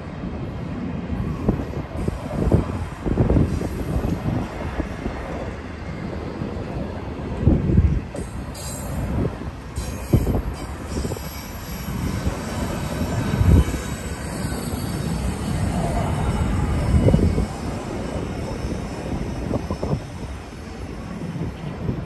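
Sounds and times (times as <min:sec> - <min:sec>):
freight train rumbling on rails: 0:00.0 - 0:22.0
heavy train clunks: 0:00.0 - 0:22.0.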